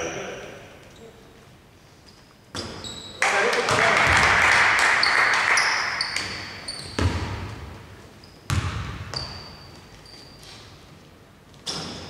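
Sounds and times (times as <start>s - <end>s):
sneaker squeaks: 0.0s - 3.3s, 4.9s - 12.0s
basketball bouncing on hardwood: 6.2s - 7.7s, 8.5s - 9.5s.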